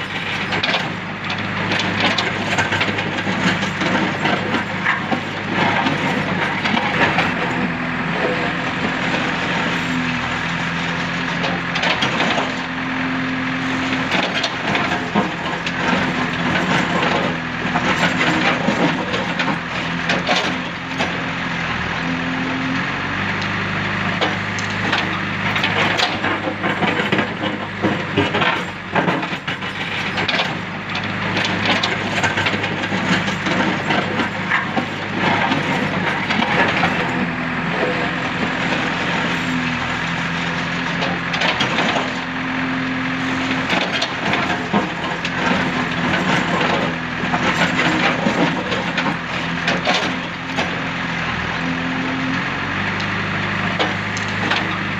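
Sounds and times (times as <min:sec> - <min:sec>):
diesel engine running under load: 0:00.0 - 0:54.9.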